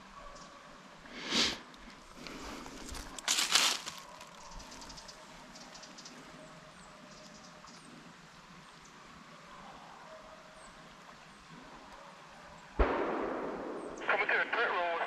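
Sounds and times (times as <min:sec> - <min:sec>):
distant hounds baying: 0:03.9 - 0:14.8.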